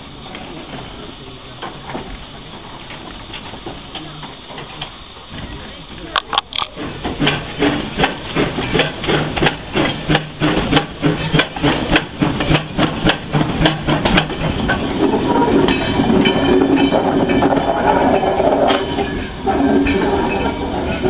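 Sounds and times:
steam locomotive chuffing: 0.0 - 21.0
train rumbling past: 0.0 - 21.0.

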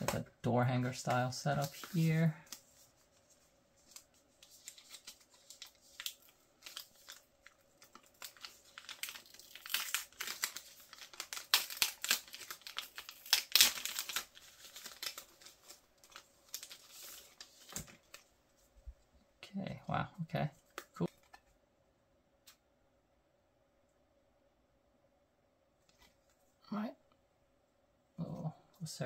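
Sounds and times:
plastic wrapper crinkling and tearing: 1.6 - 2.8, 3.8 - 18.3.

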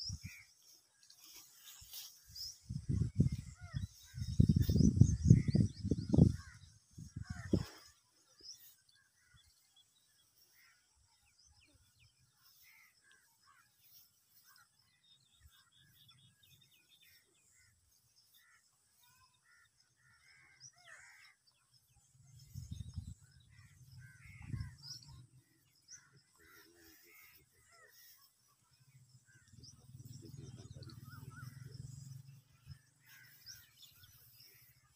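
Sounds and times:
birds calling: 0.0 - 34.9
leaves rustling: 0.3 - 2.7.

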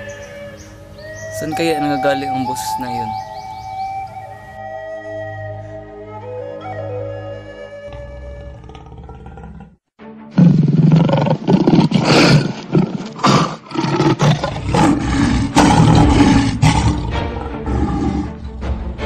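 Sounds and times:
music: 0.0 - 8.6, 10.0 - 19.0
tigers roaring: 8.4 - 9.8, 10.4 - 18.6.

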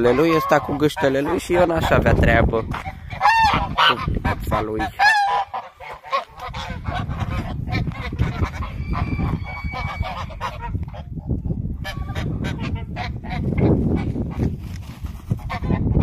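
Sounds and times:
geese honking: 0.0 - 2.0, 2.7 - 11.1, 11.8 - 14.1.

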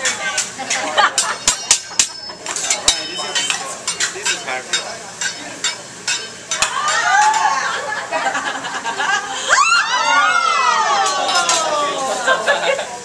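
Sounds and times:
metal spatulas clanking on griddle: 0.0 - 7.5, 11.0 - 11.7
griddle sizzling: 0.0 - 13.0.

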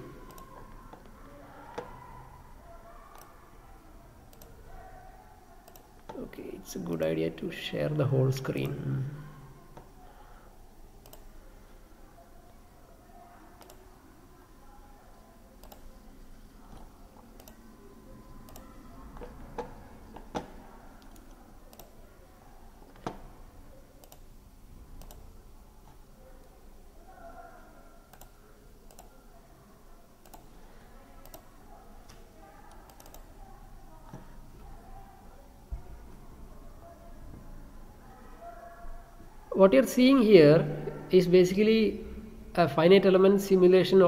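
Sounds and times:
faint room noise: 0.0 - 44.0.

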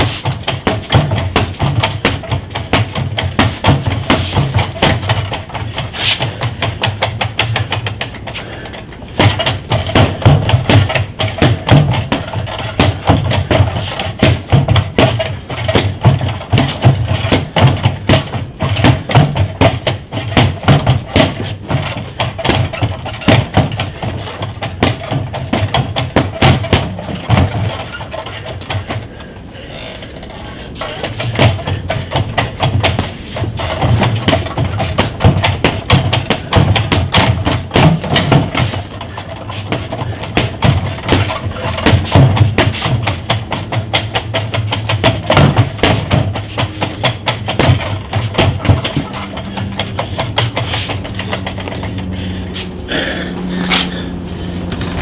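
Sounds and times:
boxing gloves punching bag: 0.0 - 29.2, 30.8 - 54.0, 54.7 - 55.0
spring stem rattling: 29.7 - 52.3.

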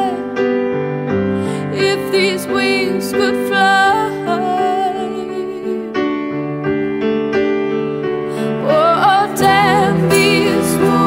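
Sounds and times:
held keyboard chords: 0.0 - 11.0
person singing: 1.5 - 6.0, 8.4 - 11.0.

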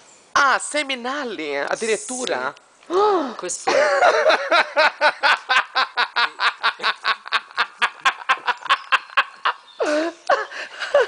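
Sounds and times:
woman laughing: 3.6 - 11.0.

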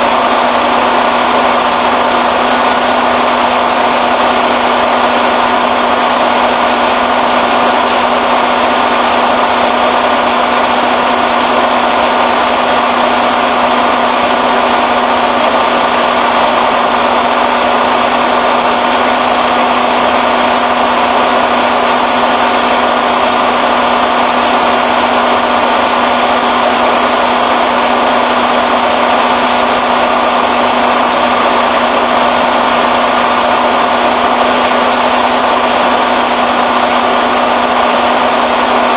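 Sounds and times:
fuel pump running: 0.0 - 38.9
truck idling: 0.0 - 38.9.

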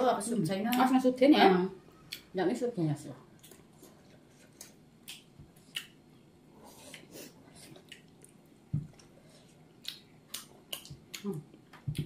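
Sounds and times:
wet chewing and lip-smacking: 3.4 - 6.0, 6.7 - 12.0.

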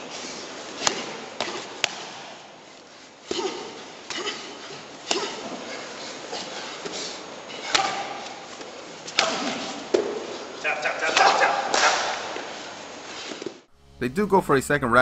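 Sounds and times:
gym room noise: 0.0 - 14.6
punches slapping and thudding: 0.7 - 2.4, 3.3 - 5.8, 7.6 - 12.4.

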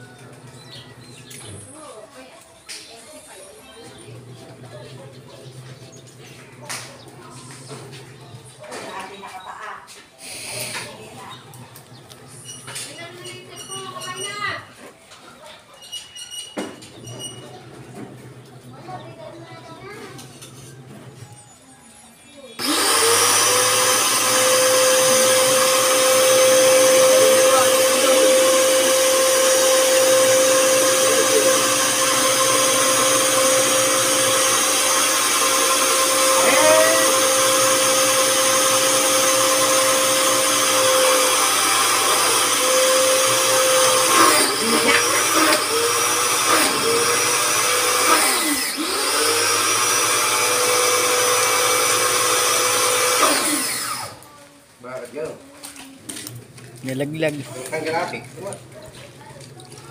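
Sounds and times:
pressure washer whine: 22.6 - 54.3.

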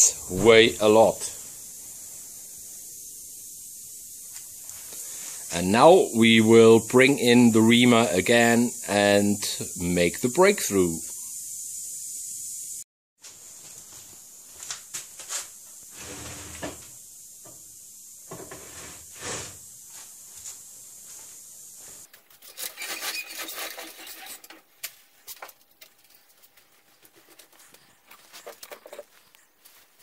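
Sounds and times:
metal scraping and clicking: 22.1 - 26.5.

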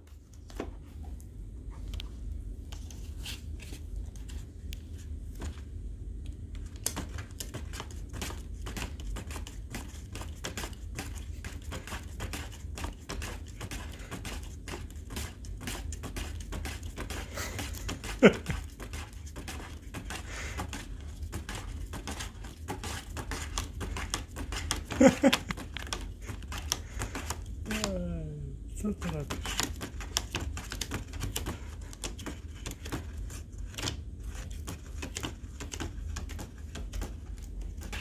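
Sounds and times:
cat rummaging in paper: 6.6 - 28.0.

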